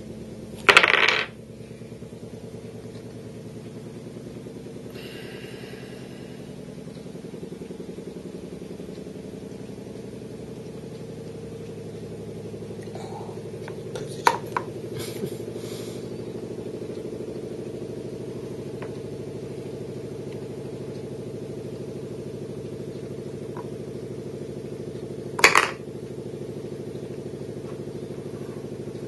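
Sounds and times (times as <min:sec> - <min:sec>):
low machine hum: 0:00.0 - 0:29.0
wooden blocks knocking: 0:00.6 - 0:01.3, 0:25.4 - 0:25.8.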